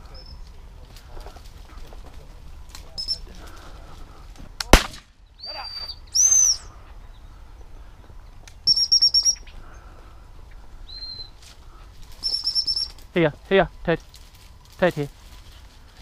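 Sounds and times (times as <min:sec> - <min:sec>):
shotgun shot: 0:04.6 - 0:05.2.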